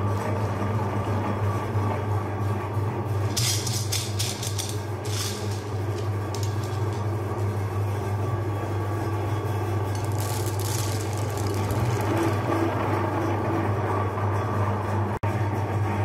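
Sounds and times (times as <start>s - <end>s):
low mechanical hum: 0.0s - 16.0s
hard candy balls clattering: 3.3s - 7.2s, 9.8s - 13.0s.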